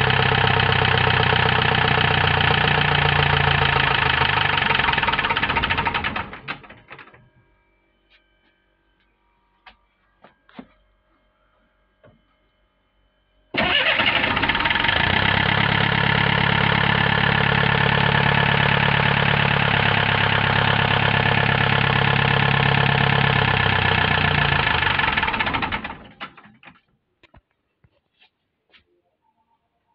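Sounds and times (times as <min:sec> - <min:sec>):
diesel engine clattering: 0:00.0 - 0:07.0, 0:13.6 - 0:26.7.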